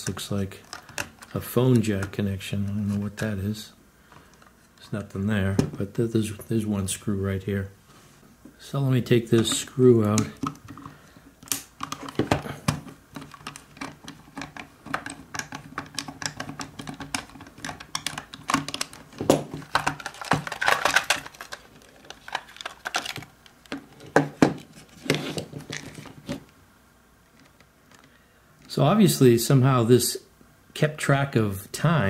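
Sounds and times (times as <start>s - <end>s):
plastic clicks and snaps: 9.4s - 23.8s.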